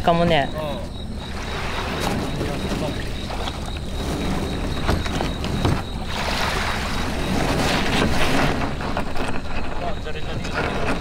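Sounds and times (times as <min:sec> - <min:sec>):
wind buffeting microphone: 0:00.0 - 0:11.0
gear knocking on plastic kayak: 0:02.0 - 0:06.1.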